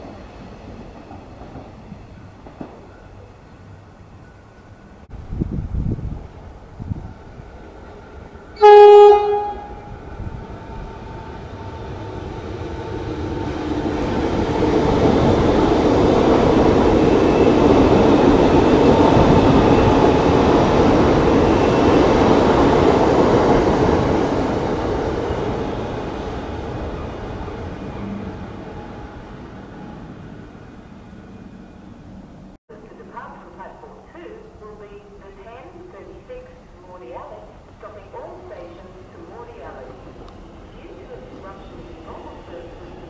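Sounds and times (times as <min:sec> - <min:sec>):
train wheels on rails: 0:00.0 - 0:04.4, 0:10.0 - 0:32.5
train horn blast: 0:08.6 - 0:10.4.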